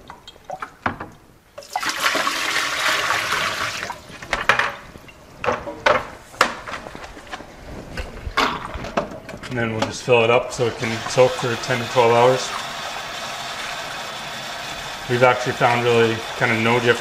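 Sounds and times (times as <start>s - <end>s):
water poured into sink: 1.6s - 4.1s, 10.6s - 17.0s
water running into bucket: 1.6s - 4.5s, 10.0s - 17.0s.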